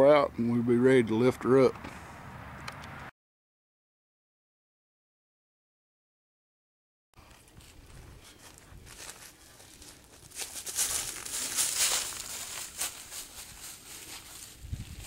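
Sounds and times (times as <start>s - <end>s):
footsteps rustling and crunching: 7.2s - 15.0s.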